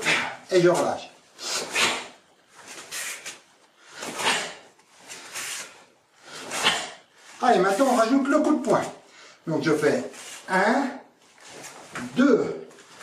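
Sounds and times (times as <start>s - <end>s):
fabric swishing: 1.6s - 9.0s.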